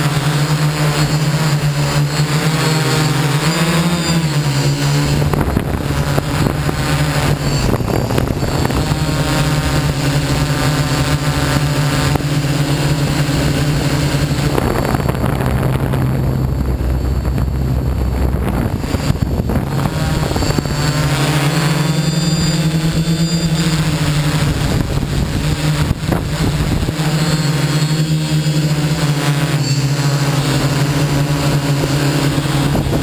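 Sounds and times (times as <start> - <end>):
drone propellers humming: 0.0 - 33.0
low rumble: 13.3 - 21.2.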